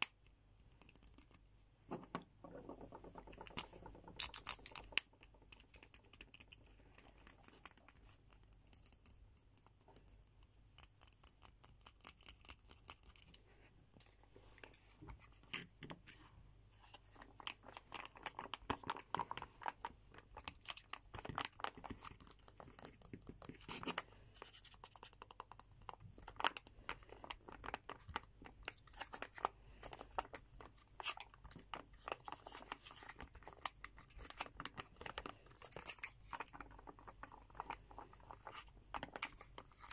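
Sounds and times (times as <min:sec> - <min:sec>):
plastic pens clicking: 0:03.3 - 0:06.6, 0:07.2 - 0:10.2.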